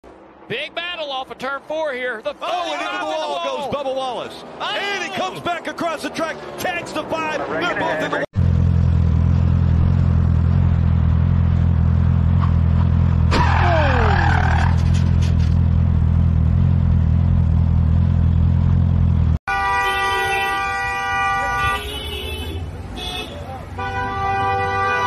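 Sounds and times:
crash with falling screech: 13.3 - 15.6
car horn: 19.5 - 25.0.

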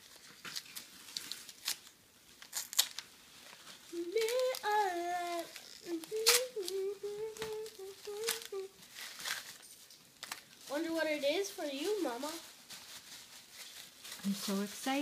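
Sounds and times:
wrapping paper crinkling and tearing: 0.0 - 15.0
girl humming: 3.9 - 8.8.

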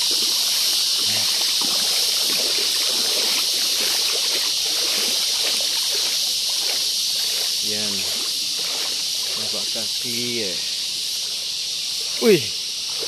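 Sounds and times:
insects droning: 0.0 - 13.0
water trickling and lapping: 0.0 - 13.0.

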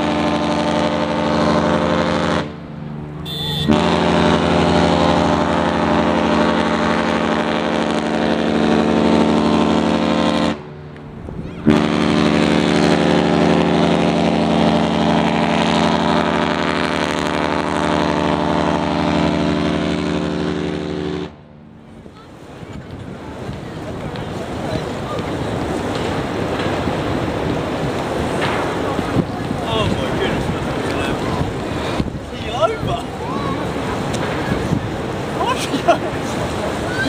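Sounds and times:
ship horn blasts: 0.0 - 22.5.

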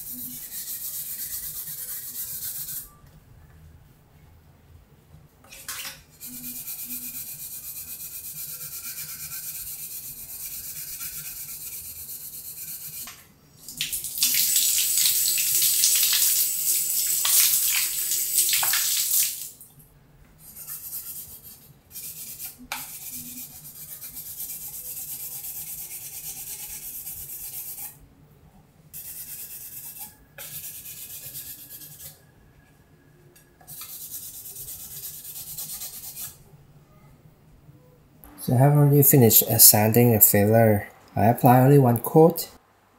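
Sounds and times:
sandpaper rasping on filler: 0.0 - 2.9, 6.2 - 13.1, 20.4 - 28.0, 29.0 - 32.2, 33.7 - 36.4
tap water running: 13.6 - 19.6.

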